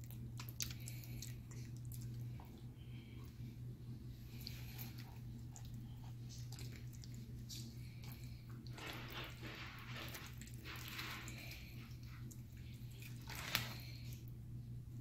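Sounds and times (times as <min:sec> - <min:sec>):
wet squishing and rustling: 0:00.0 - 0:14.4
steady low hum: 0:00.0 - 0:15.0.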